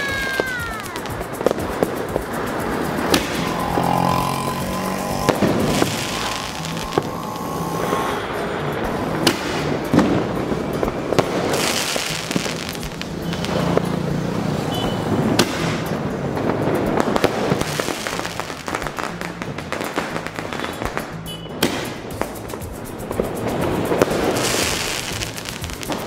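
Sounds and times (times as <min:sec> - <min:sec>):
crackling firework pops: 0:00.0 - 0:03.6, 0:09.2 - 0:14.0, 0:15.1 - 0:26.0
sharp firework cracks: 0:00.0 - 0:14.0, 0:15.0 - 0:26.0.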